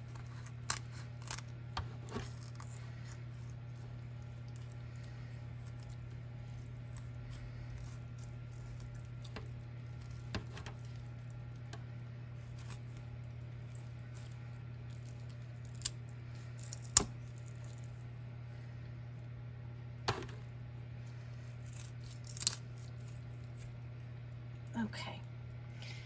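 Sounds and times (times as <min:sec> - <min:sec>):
wet squishing of chicken flesh: 0:00.0 - 0:18.2
steady low hum: 0:00.0 - 0:26.0.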